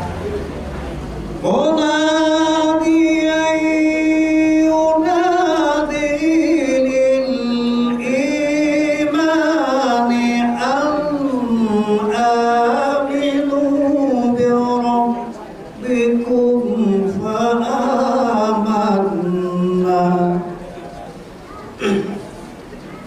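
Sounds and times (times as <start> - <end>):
man chanting: 1.4 - 20.7.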